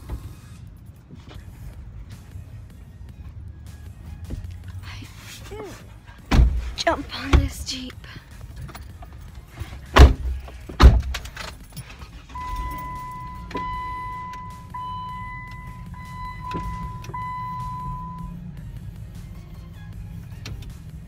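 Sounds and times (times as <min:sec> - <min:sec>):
car engine rumble: 0:00.0 - 0:21.0
car door thumping shut: 0:06.3 - 0:06.7, 0:09.9 - 0:11.3.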